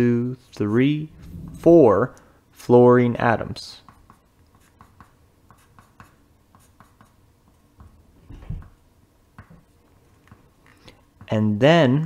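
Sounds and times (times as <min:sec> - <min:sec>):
low thud: 0:01.1 - 0:01.7
pencil scratching on paper: 0:03.8 - 0:07.2
pencil tapping on paper: 0:03.8 - 0:08.0.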